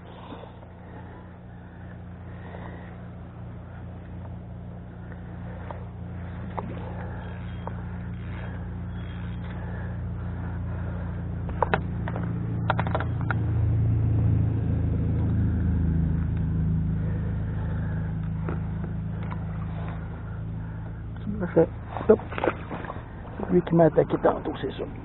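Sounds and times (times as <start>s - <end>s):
low motor rumble: 0.0s - 25.0s
sharp clicks and knocks: 11.4s - 13.4s.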